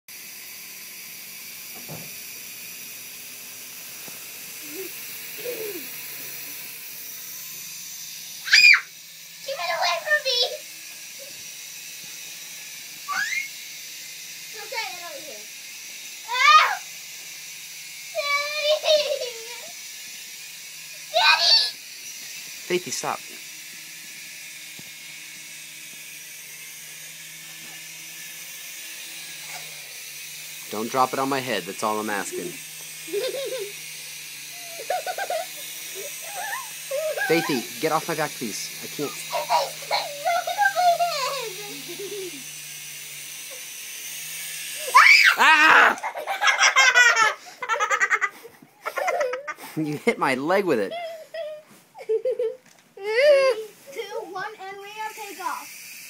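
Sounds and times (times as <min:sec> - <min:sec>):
toy helicopter rotors whirring: 0:00.1 - 0:56.0.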